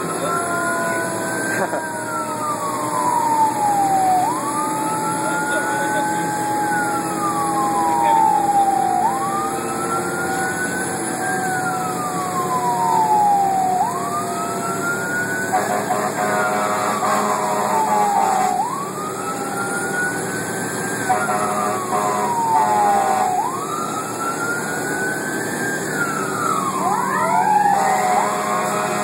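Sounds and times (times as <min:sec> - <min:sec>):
steady falling tone: 0:00.0 - 0:15.4
engine humming: 0:00.0 - 0:28.8
siren wailing: 0:00.0 - 0:29.0.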